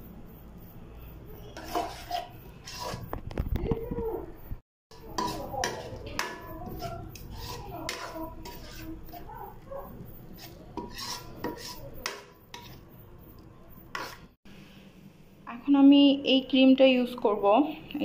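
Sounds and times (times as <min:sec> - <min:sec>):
metal spoon scraping a pan: 0:01.4 - 0:03.3, 0:04.9 - 0:13.0, 0:13.8 - 0:14.4.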